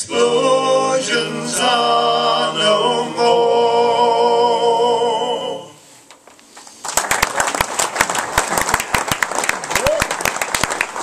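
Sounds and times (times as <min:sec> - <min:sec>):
male voices singing in harmony: 0:00.0 - 0:05.9
audience applause: 0:06.8 - 0:11.0.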